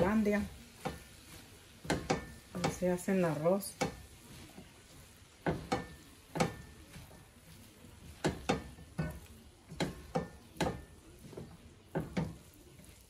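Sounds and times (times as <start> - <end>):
spatula knocking on metal pot: 0.0 - 1.1, 1.8 - 4.2, 5.4 - 7.3, 8.1 - 12.6.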